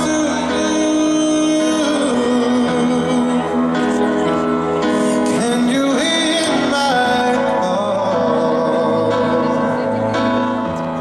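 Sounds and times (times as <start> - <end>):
man singing a slow ballad: 0.0 - 10.0
sustained instrumental accompaniment: 0.0 - 11.0.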